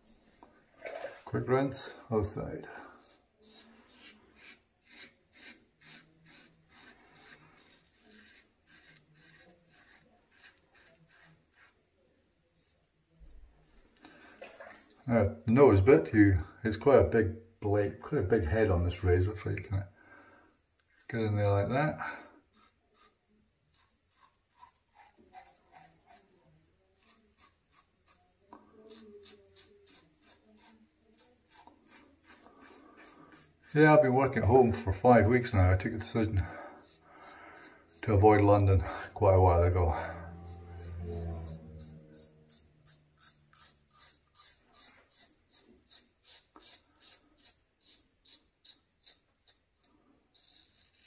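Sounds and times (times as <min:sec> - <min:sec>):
razor scraping stubble: 0:02.9 - 0:11.8, 0:20.8 - 0:49.6.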